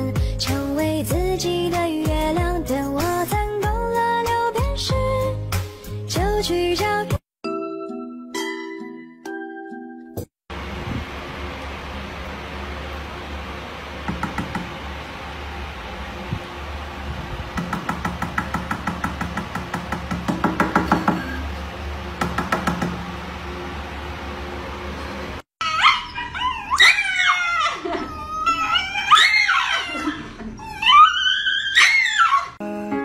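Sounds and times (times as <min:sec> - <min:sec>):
dog yelling cries: 0:25.6 - 0:32.6.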